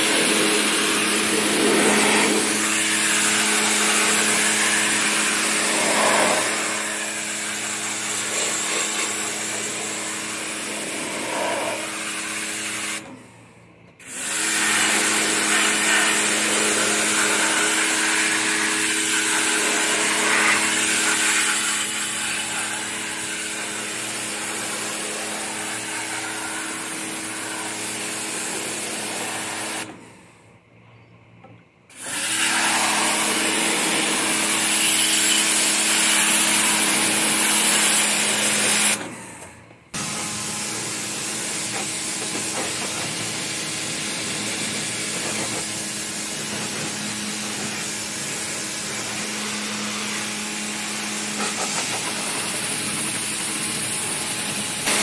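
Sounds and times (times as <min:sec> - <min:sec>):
water jet hissing on metal fins: 0:00.0 - 0:07.3
pressure washer pump humming: 0:00.0 - 0:30.4, 0:31.9 - 0:55.0.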